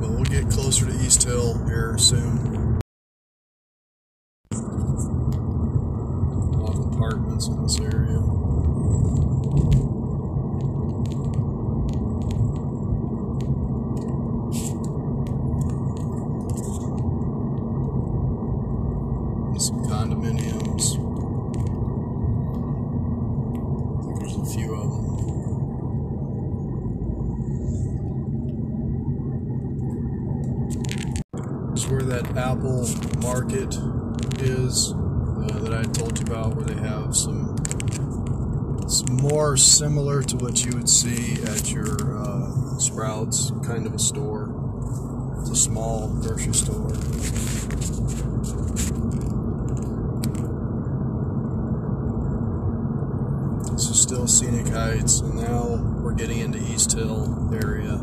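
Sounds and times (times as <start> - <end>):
car interior road rumble: 0.0 - 2.8, 4.5 - 58.0
scraping rustles: 44.8 - 50.5.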